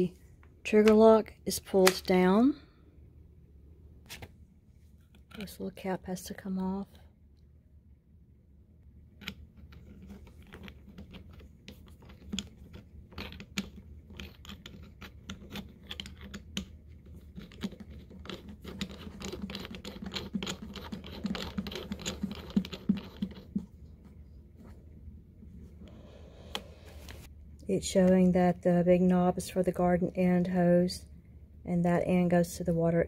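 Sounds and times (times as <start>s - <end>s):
hose adapter clicking and scratching: 9.1s - 23.7s.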